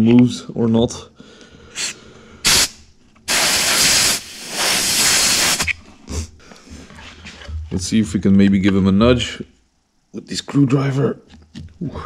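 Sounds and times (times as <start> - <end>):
air blow gun hissing: 1.8 - 5.7.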